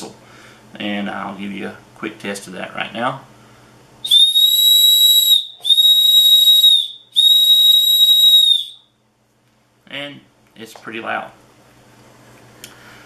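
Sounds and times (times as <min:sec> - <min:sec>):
shrill whistle blasts: 0:04.0 - 0:08.9.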